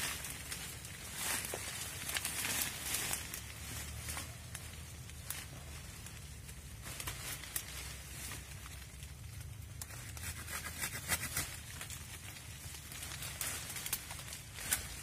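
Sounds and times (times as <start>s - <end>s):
branches and leaves rustling: 0.0s - 15.0s
branches cracking and scraping: 0.0s - 15.0s.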